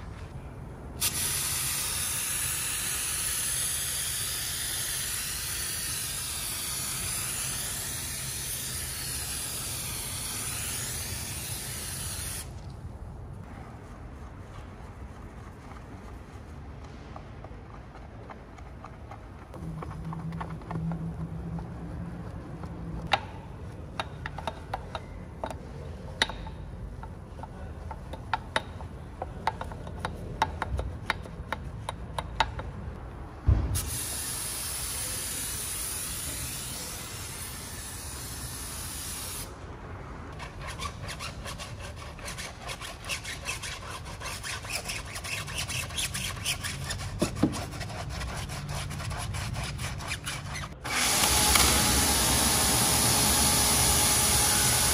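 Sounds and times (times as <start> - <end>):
thump: 33.4 - 33.9
brush scrubbing tire sidewall: 40.4 - 50.8
brush scrubbing wheel spokes: 40.4 - 50.8
foam sprayer hissing: 50.9 - 54.9.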